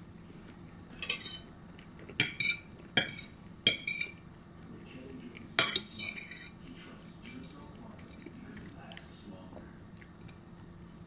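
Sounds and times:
metal fork clinking on plate: 1.0s - 1.4s, 2.2s - 4.2s, 5.6s - 6.6s.

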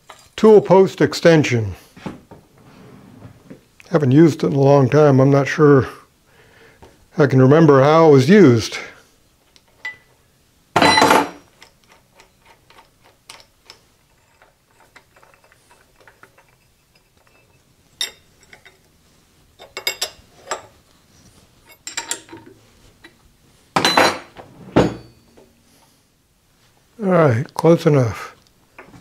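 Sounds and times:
metal tools clanking and clicking: 10.8s - 18.9s, 19.6s - 20.7s, 21.7s - 22.6s.

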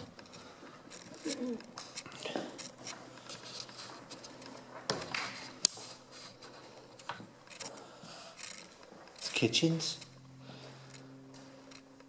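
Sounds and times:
footsteps on tiled floor: 0.0s - 7.8s.

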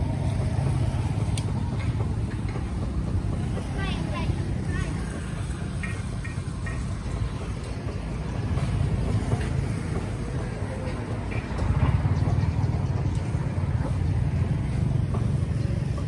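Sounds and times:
motorbike engine rumbling: 0.0s - 16.0s
roadside traffic: 0.0s - 16.0s.

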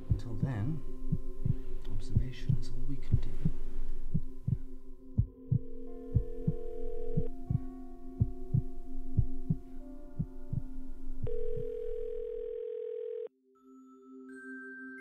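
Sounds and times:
heartbeat thumps: 0.0s - 10.8s
steady hum: 0.0s - 11.9s
soft bell-like music: 0.0s - 12.0s, 13.4s - 15.0s
long held tone: 5.3s - 7.6s, 11.2s - 13.3s.

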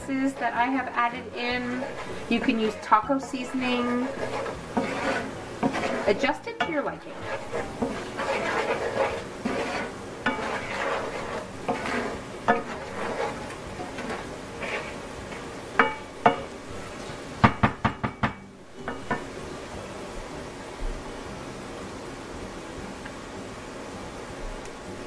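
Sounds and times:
wooden spoon scraping a pan: 0.0s - 17.6s, 18.7s - 19.2s
spoon knocking against pan: 17.4s - 19.3s.

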